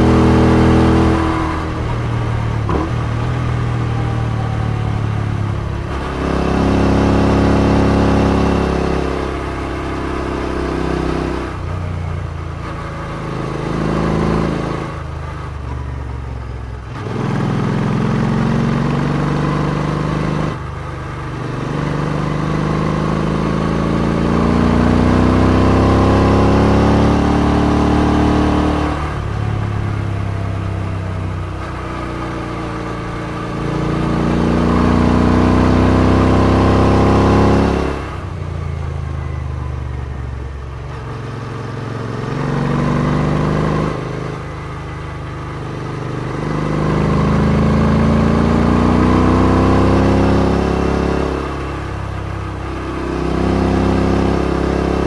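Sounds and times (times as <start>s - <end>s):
motorcycle engine revving: 0.0s - 16.1s, 16.8s - 55.0s.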